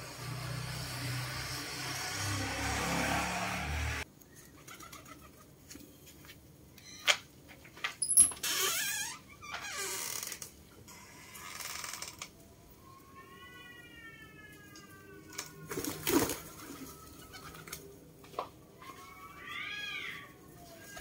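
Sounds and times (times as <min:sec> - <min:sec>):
cat meowing: 0:12.8 - 0:15.7.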